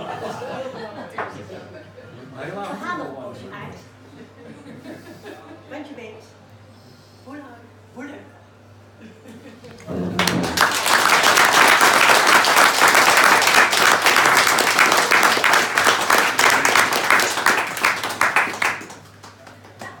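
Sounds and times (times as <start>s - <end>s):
small group applauding: 9.7s - 20.0s.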